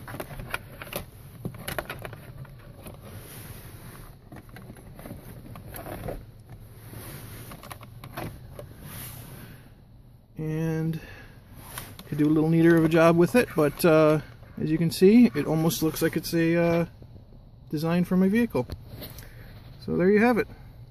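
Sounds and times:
plastic trim clicks and rustling: 0.0s - 3.1s.

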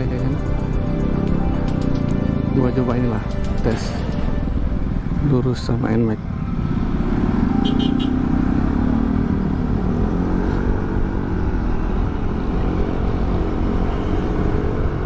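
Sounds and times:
scooter engine running hard: 6.3s - 11.2s.

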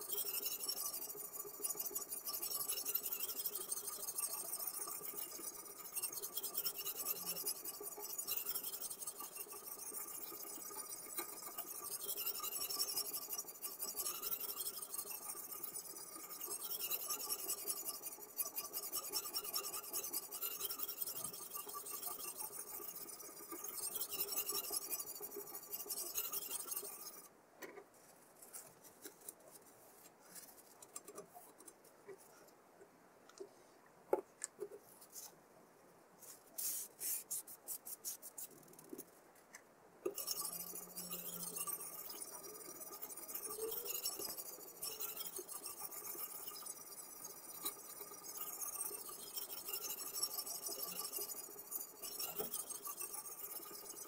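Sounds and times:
sharpening stone rasping on knife: 0.0s - 27.3s, 40.1s - 54.0s.

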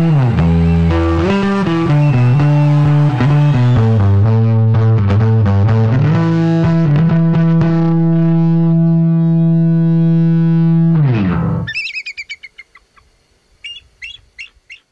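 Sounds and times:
distorted electric bass guitar: 0.0s - 11.8s
bird chirps: 11.7s - 14.9s.

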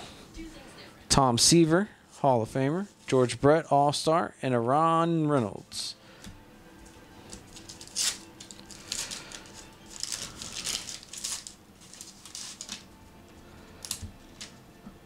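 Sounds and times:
wax paper wrapper tearing: 7.3s - 12.9s, 13.8s - 14.6s.

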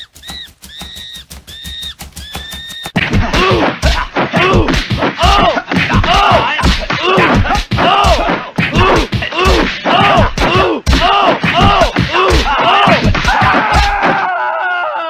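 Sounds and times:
loud thuds and whacks: 0.0s - 14.2s
person crying out: 3.3s - 15.0s.

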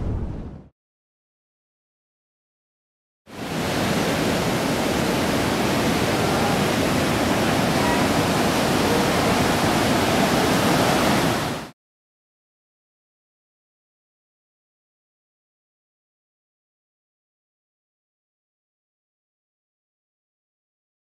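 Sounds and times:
ocean waves crashing: 3.3s - 11.7s.

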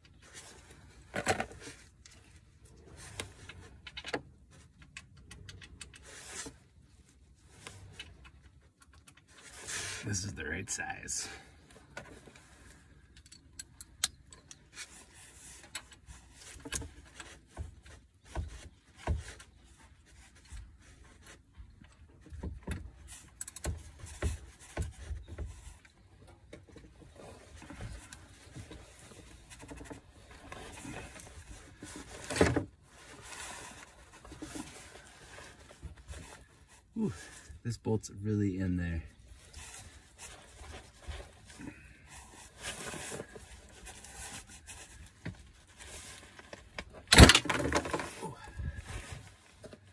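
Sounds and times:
clothing rustling: 39.2s - 47.1s.

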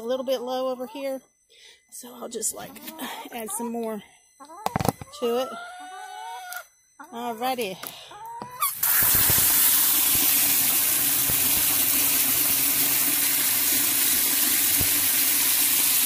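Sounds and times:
water running into container: 8.7s - 16.0s.

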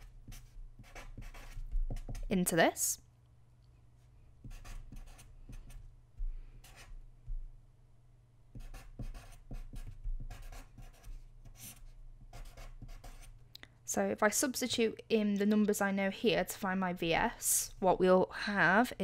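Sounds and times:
marker writing on paper: 0.0s - 2.3s, 4.4s - 5.9s, 8.5s - 13.4s.

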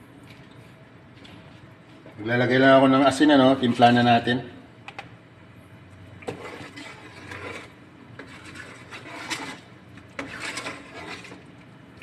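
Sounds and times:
metal spoon scraping a metal pot: 6.3s - 11.4s.

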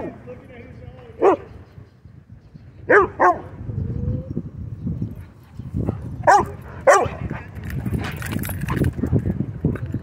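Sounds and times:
dog barking: 2.9s - 3.4s, 6.3s - 7.3s.

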